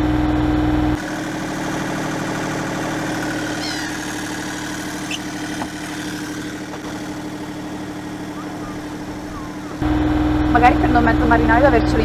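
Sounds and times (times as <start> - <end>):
boat engine running: 0.0 - 12.0
high falling chirp: 3.5 - 4.1, 8.0 - 9.9.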